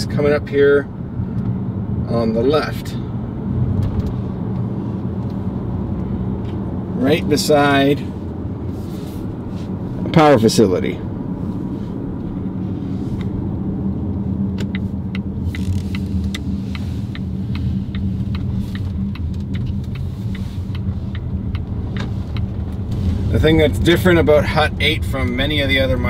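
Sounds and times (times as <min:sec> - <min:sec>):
car engine and road hum: 0:00.0 - 0:26.0
turn signal clicking: 0:13.1 - 0:23.0.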